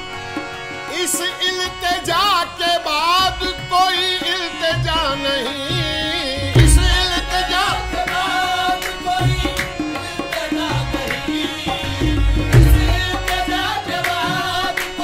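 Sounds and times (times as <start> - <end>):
tabla drumming: 1.7 - 15.0.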